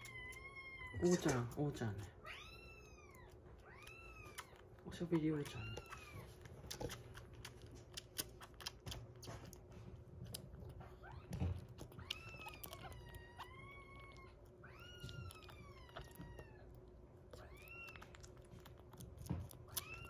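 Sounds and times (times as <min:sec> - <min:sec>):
kitten sucking from bottle: 0:00.0 - 0:20.0
kitten mewing: 0:11.0 - 0:18.9.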